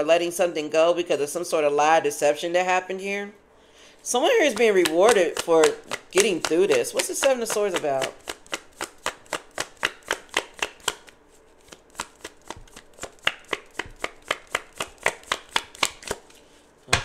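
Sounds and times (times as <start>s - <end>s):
cards being shuffled: 4.4s - 17.0s.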